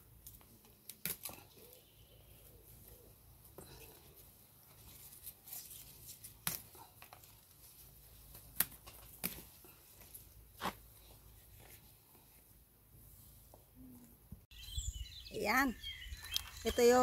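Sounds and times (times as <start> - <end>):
leaves rustling: 0.0 - 12.4
pepper stems snapping: 0.2 - 1.6, 6.2 - 7.3, 8.3 - 9.5.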